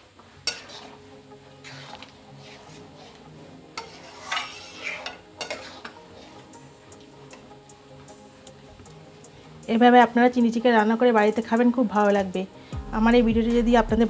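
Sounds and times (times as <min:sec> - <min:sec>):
low sizzle: 0:00.0 - 0:14.0
metal spoon scraping a steel pan: 0:00.4 - 0:06.6.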